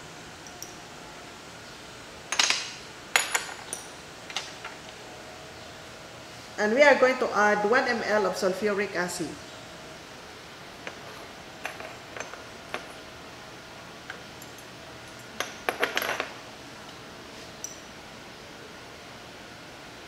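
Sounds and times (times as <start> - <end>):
glass clinking: 17.6 - 18.0.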